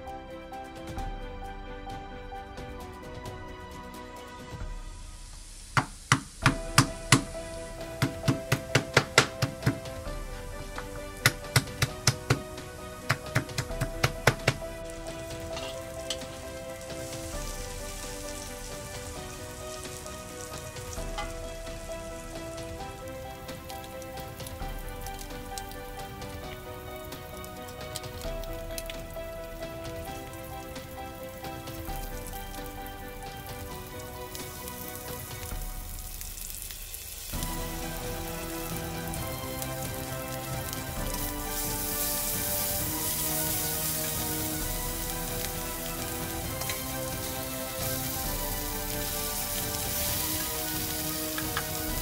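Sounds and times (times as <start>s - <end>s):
soft background music: 0.0s - 52.0s
food sizzling in hot oil: 4.6s - 52.0s.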